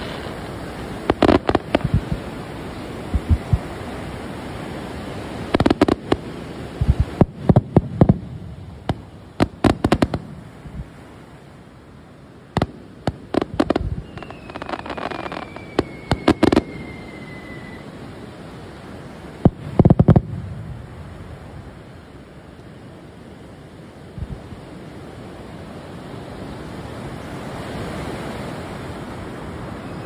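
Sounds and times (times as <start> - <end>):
fireworks bangs and crackles: 0.0 - 11.2, 12.5 - 18.2, 19.0 - 21.7
firework whistle: 13.4 - 18.2.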